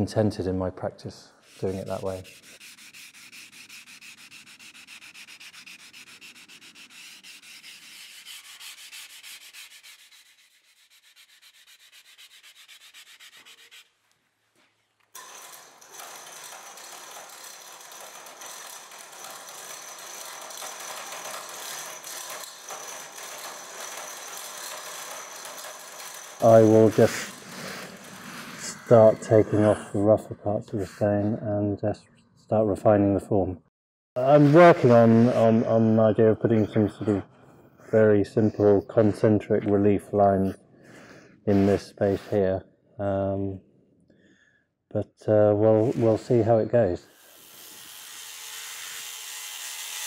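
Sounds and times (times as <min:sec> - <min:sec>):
sanding stone with abrasive pad: 0:01.4 - 0:14.0, 0:16.0 - 0:30.0, 0:41.5 - 0:42.4, 0:47.2 - 0:50.0.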